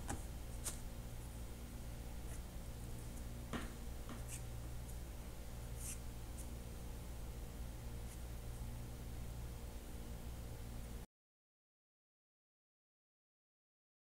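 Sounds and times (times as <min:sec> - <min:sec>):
low steady hum: 0:00.0 - 0:11.1.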